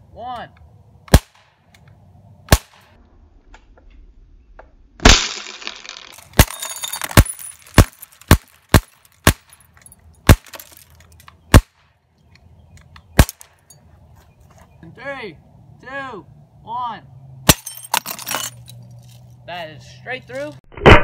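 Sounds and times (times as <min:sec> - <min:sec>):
air pistol shots: 0:01.1 - 0:01.5, 0:02.5 - 0:02.9, 0:05.0 - 0:05.5
glass bottle shattering: 0:05.1 - 0:08.0, 0:17.5 - 0:18.8
broken glass tinkling: 0:05.6 - 0:07.8, 0:17.6 - 0:18.8.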